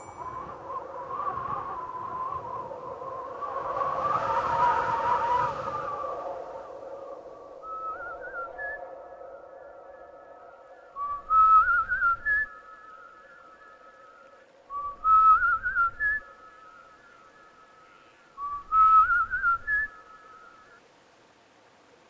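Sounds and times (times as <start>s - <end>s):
person whistling a tune: 0.0s - 0.6s, 7.6s - 8.8s, 11.0s - 14.0s, 14.7s - 16.6s, 18.4s - 20.5s.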